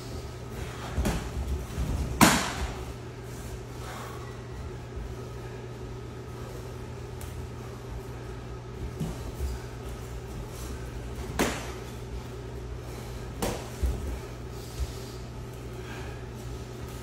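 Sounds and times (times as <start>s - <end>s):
ventilation hum: 0.0s - 17.0s
footwork thuds on mats: 0.6s - 2.9s.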